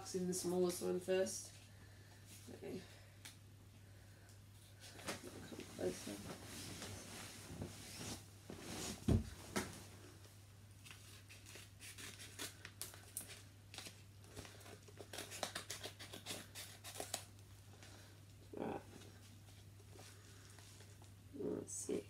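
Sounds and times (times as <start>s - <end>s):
person sitting on bed thump: 5.0s - 9.9s
scissors snipping paper: 14.9s - 17.3s.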